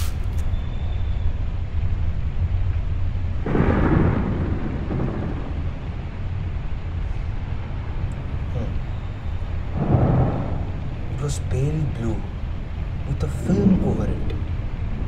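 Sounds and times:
thunder rumbling: 1.0s - 15.0s
thunder peal: 3.4s - 15.0s.

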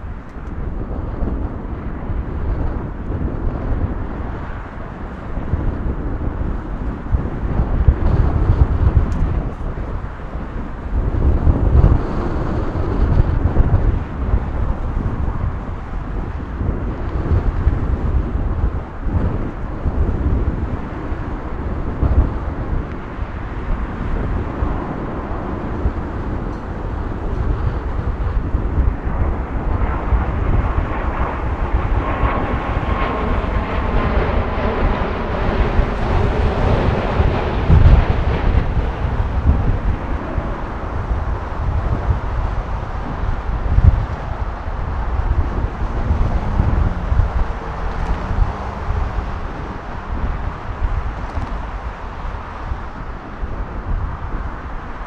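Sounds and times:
jet airliner rumble and whine: 0.0s - 55.0s
wind buffeting microphone: 0.0s - 55.0s.

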